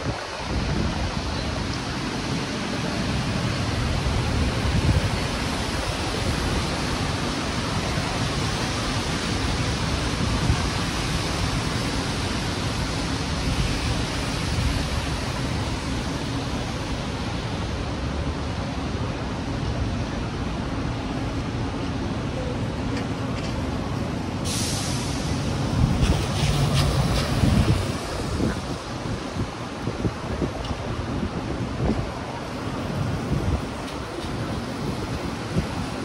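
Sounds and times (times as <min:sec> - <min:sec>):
wind buffeting microphone: 0:00.0 - 0:17.7, 0:25.2 - 0:36.0
strong wind rushing: 0:00.0 - 0:19.0, 0:24.2 - 0:36.0.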